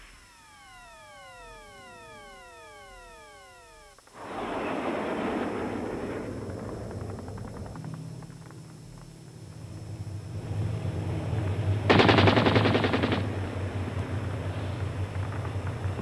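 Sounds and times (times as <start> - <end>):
tank engines droning: 0.0 - 16.0
machine-gun fire: 11.9 - 13.7.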